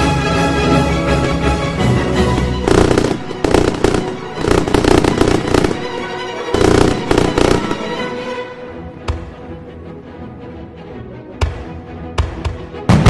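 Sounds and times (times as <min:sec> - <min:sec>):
music: 0:00.0 - 0:13.0
fireworks bursting and crackling: 0:02.4 - 0:08.2.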